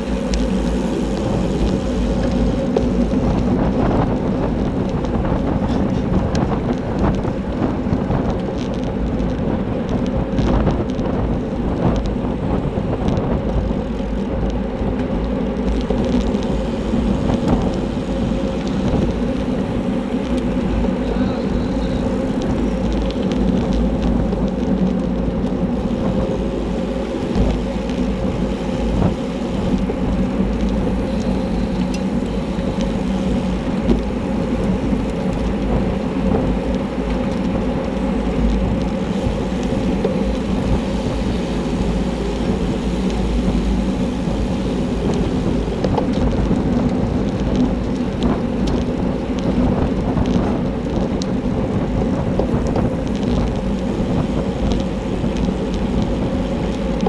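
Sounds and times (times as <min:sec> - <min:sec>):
tyres rumbling on road: 0:00.0 - 0:57.0
wind buffeting microphone: 0:00.0 - 0:57.0.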